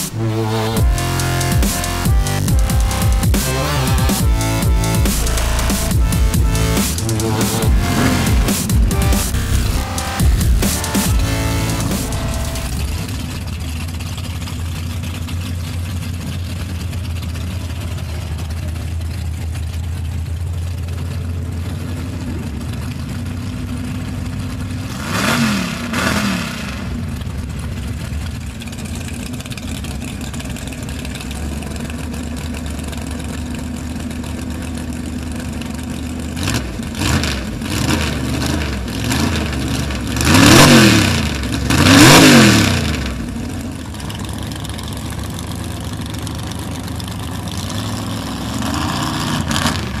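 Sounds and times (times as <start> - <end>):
truck engine idling and revving: 0.0 - 50.0.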